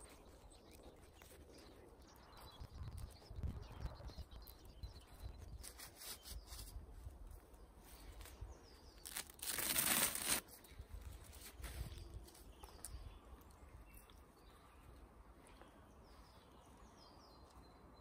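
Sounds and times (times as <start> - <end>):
hands rustling strips over dry leaves: 7.4 - 12.9
fabric ripping: 9.0 - 10.4.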